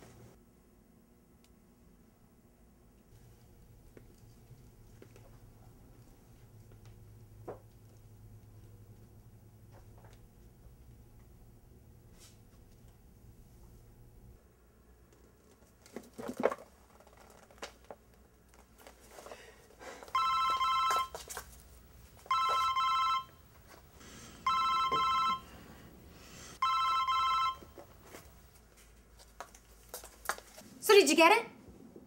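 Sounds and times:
mobile phone ringtone warbling: 20.2s - 21.1s, 22.3s - 23.4s, 24.4s - 25.5s, 26.6s - 27.6s.

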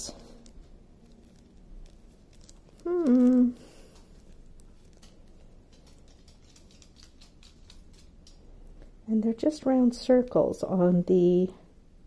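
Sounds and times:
plastic bags crinkling: 0.1s - 8.2s
woman humming: 2.8s - 3.7s.

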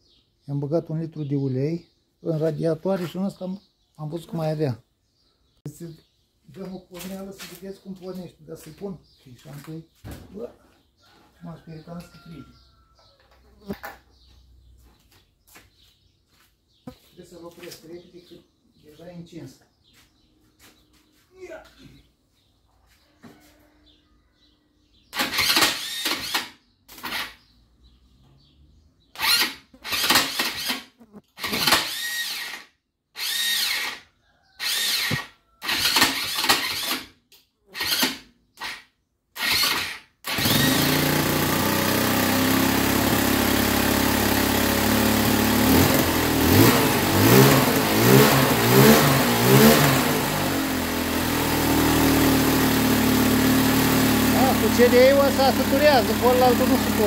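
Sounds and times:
electric starter cranking: 25.1s - 27.5s, 29.1s - 37.2s, 37.8s - 57.0s
atv engine running and revving: 40.3s - 57.0s.

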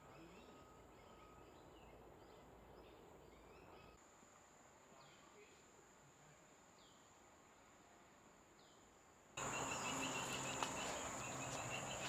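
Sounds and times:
insects droning: 2.8s - 12.0s.

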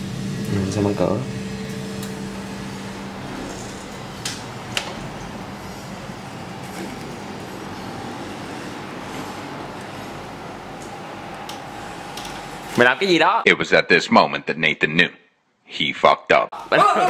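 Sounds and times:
room fan whooshing: 0.0s - 13.4s.

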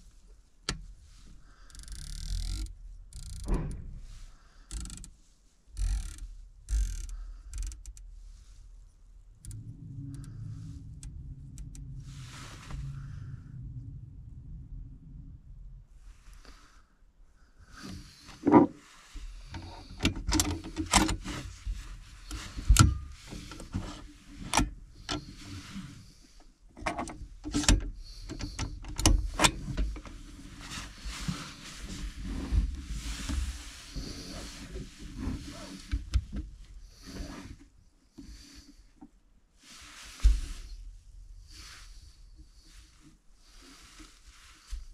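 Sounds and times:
rustling and shuffling: 0.0s - 1.7s, 2.4s - 16.9s, 17.6s - 44.9s.

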